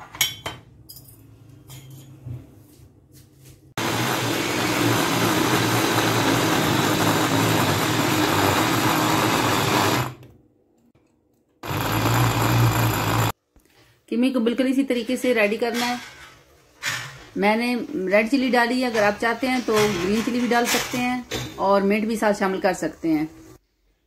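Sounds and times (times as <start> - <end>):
electric food chopper motor running: 3.8 - 10.2, 11.6 - 13.4.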